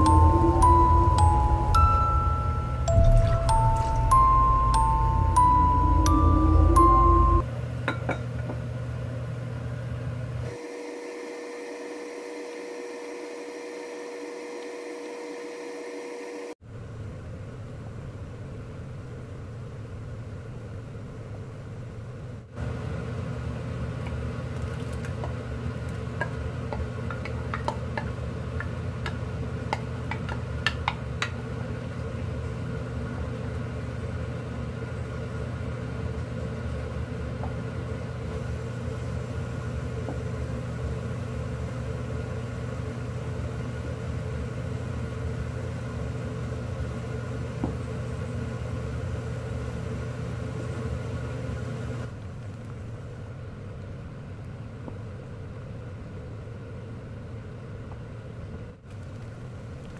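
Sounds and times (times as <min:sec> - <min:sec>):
low hum: 0:00.0 - 0:07.4, 0:16.7 - 0:22.6.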